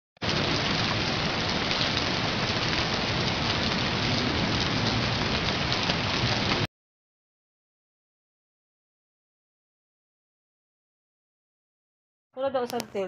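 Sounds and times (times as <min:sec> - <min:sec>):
rain-like hiss: 0:00.2 - 0:06.7.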